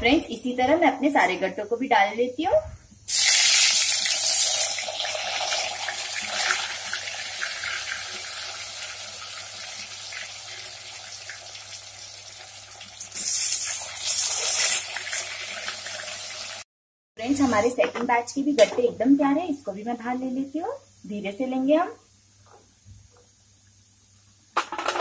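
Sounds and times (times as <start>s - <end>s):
dumplings deep-frying in hot oil: 3.0s - 22.8s.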